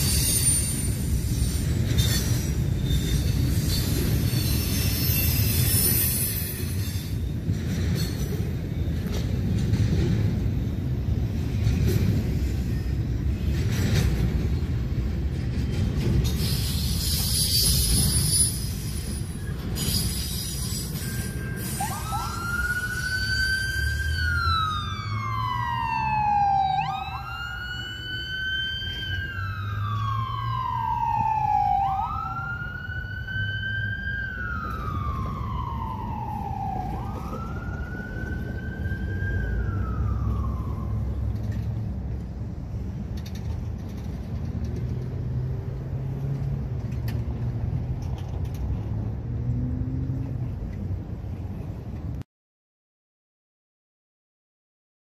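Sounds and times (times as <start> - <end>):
ambulance siren wailing: 20.8 - 41.6.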